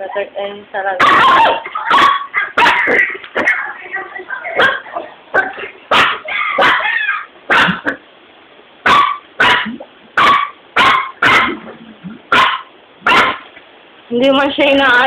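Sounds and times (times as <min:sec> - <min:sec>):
dog barking: 0:01.0 - 0:03.6, 0:04.6 - 0:08.0, 0:08.8 - 0:11.6, 0:12.3 - 0:13.5.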